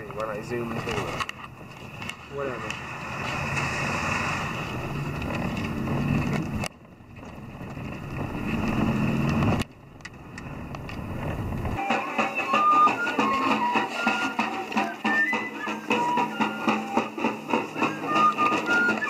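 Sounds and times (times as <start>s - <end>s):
vehicle engine and road noise: 0.0s - 19.0s
music with high held notes: 11.8s - 19.0s.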